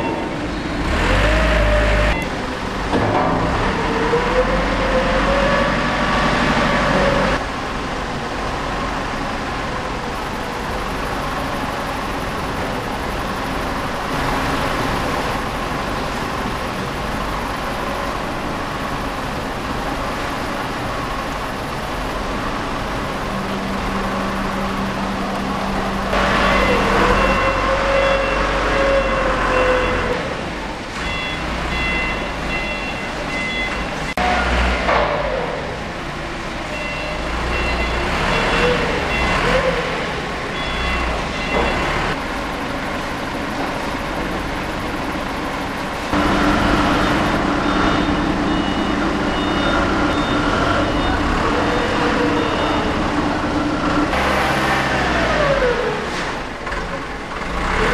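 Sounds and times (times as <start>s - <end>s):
forklift engine running: 0.0s - 57.9s
short warning beeps: 31.0s - 33.8s.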